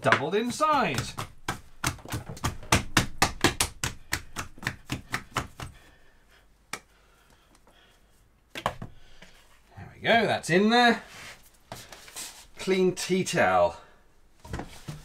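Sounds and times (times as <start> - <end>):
hands tapping plastic bowl: 0.0 - 5.8.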